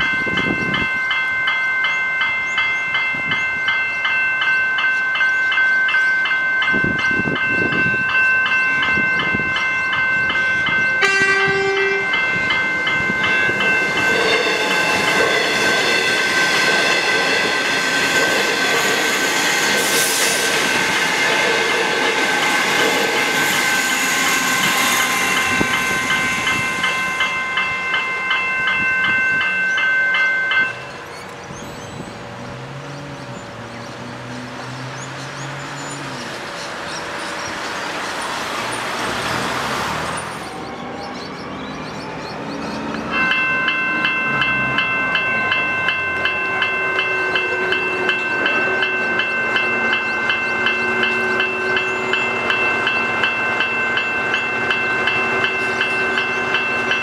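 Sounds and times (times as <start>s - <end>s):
level crossing bells ringing: 0.0s - 31.8s, 40.1s - 57.0s
train wheels and running gear: 6.7s - 57.0s
train horn blast: 11.0s - 12.4s, 46.8s - 49.9s, 50.5s - 52.6s.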